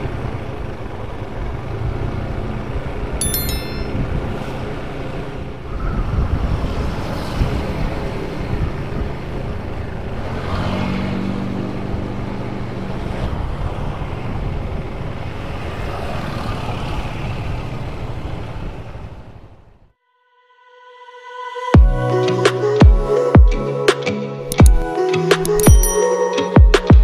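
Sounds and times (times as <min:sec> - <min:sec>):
wind buffeting microphone: 0:05.4 - 0:10.2.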